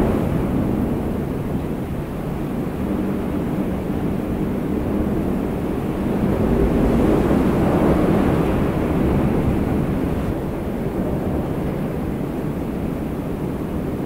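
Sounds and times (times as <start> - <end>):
low rumbling drone: 0.0 - 10.4.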